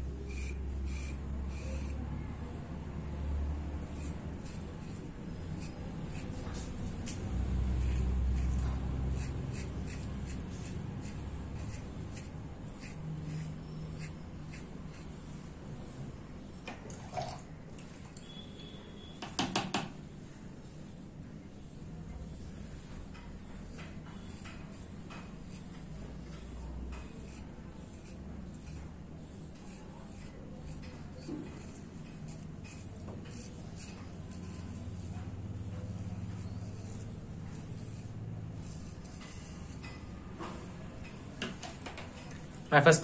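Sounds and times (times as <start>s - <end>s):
razor scraping stubble: 0.0s - 2.6s, 3.2s - 16.0s, 23.2s - 40.2s.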